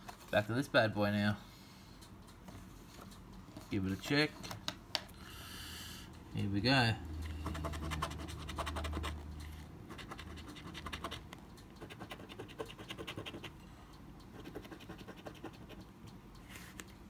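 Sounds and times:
coin scraping scratch card: 7.3 - 9.2, 9.9 - 11.2, 11.8 - 13.6, 14.4 - 15.8.

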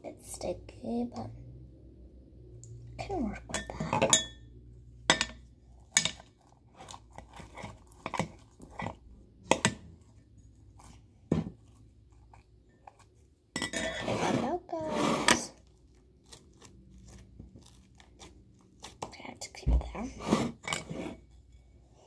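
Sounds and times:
plastic spoon scraping plastic bowl: 5.2 - 21.5
slime rustling: 5.6 - 9.2, 15.1 - 20.3.

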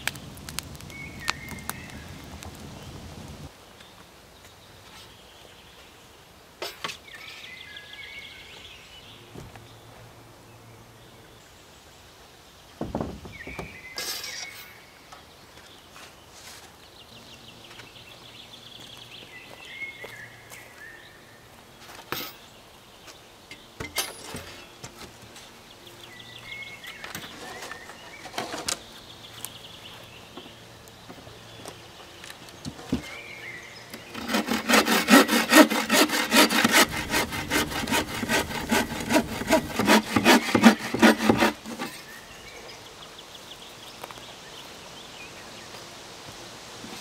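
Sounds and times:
songbirds chirping and trilling: 0.2 - 47.0.

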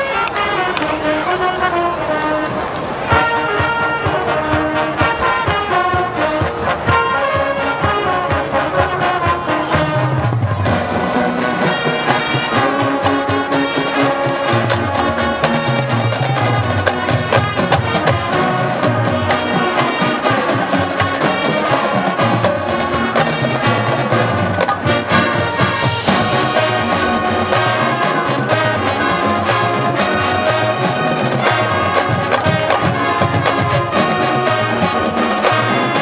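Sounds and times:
marching band brass: 0.0 - 36.0
percussion steady beat: 0.0 - 36.0.

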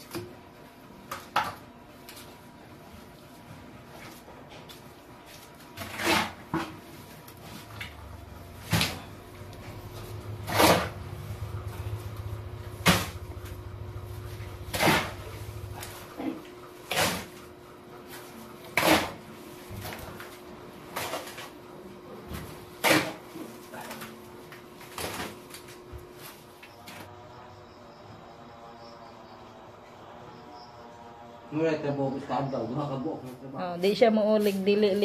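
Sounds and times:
shovel scraping concrete: 5.4 - 6.8, 10.4 - 11.0, 14.6 - 15.9, 16.9 - 17.4, 18.7 - 19.3, 22.8 - 23.5.

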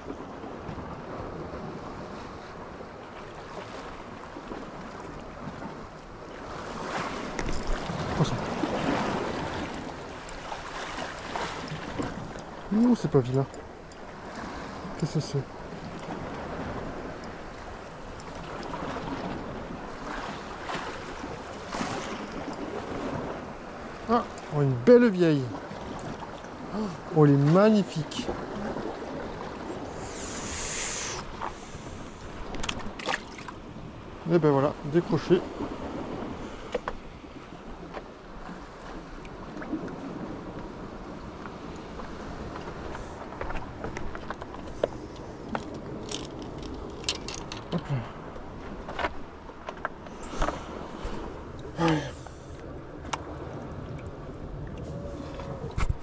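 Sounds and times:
surf: 0.0 - 56.0
wind: 0.0 - 56.0
waves washing against rocks: 3.5 - 37.1
sea hissing rush on rocks: 29.9 - 32.2.

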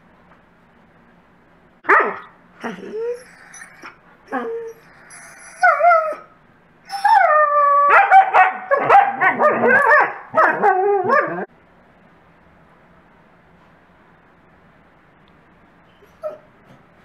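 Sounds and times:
wolfdogs whining and yipping: 2.1 - 6.3, 6.9 - 11.5, 16.0 - 16.5.

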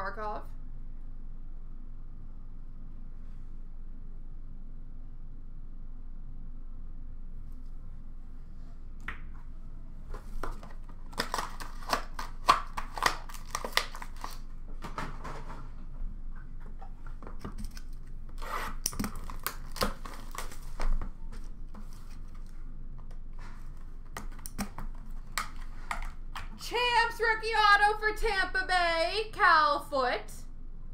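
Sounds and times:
cards and cases clicking: 10.2 - 14.4, 17.2 - 23.2, 24.0 - 26.6
packaging rustling: 10.2 - 15.6, 16.6 - 26.5
cardboard boxes torn open: 10.4 - 14.5, 18.4 - 21.0.

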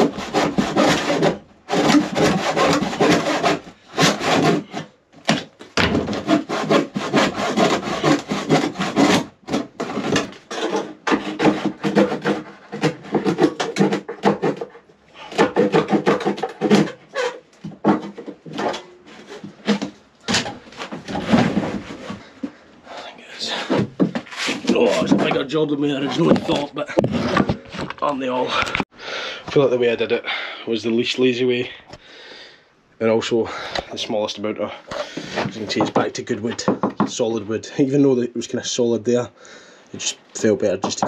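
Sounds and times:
hand saw cutting wood: 0.0 - 22.3, 23.4 - 27.5.

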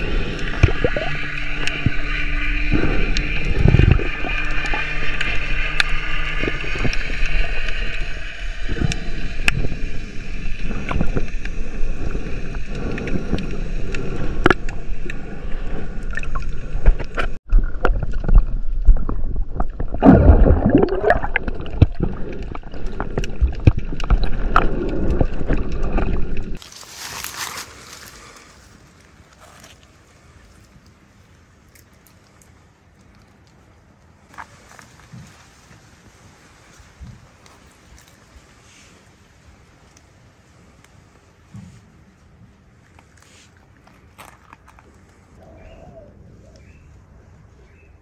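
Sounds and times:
faint steady whine: 0.0 - 17.4
water rushing and gurgling: 0.0 - 42.0.

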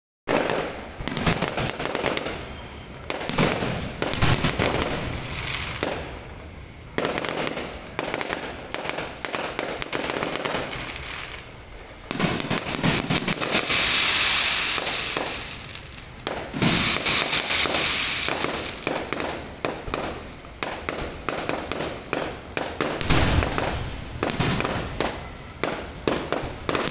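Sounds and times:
fireworks bangs: 0.3 - 26.9
fireworks crackling: 0.3 - 26.9.

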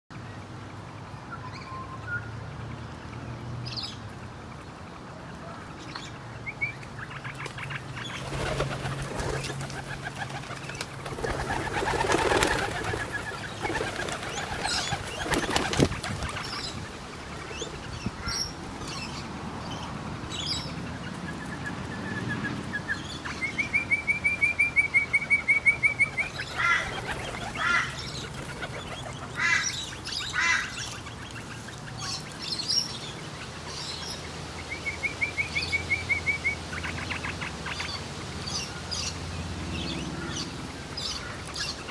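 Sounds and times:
small birds chirping: 5.6 - 41.9
pigeon wingbeats: 7.4 - 16.6, 26.2 - 29.6.

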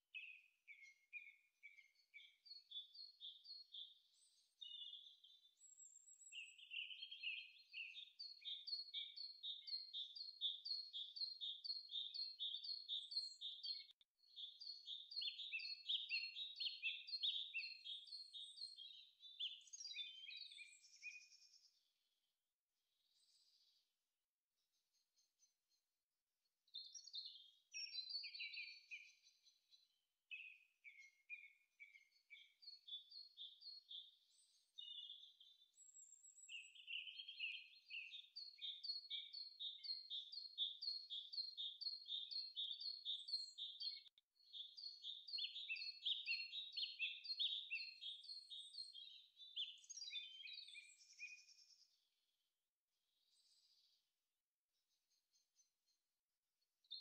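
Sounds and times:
small bird singing: 0.0 - 21.9, 23.0 - 23.8, 26.6 - 52.2, 53.1 - 54.1, 54.8 - 56.0.

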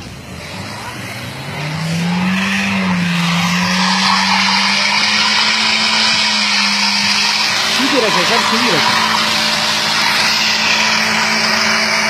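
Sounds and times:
car engine at high revs: 0.0 - 12.0
tyres spinning on ice: 2.8 - 12.0.

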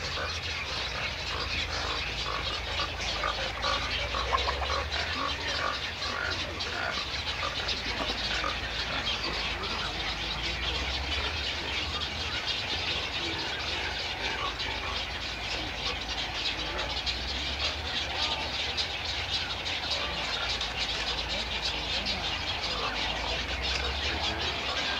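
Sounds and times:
many herons calling: 0.0 - 24.9.

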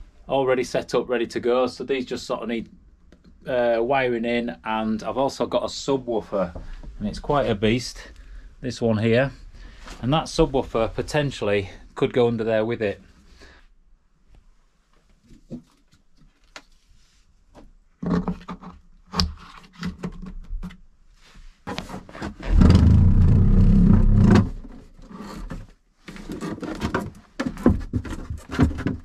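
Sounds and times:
box scraping on wooden floor: 21.7 - 26.9.

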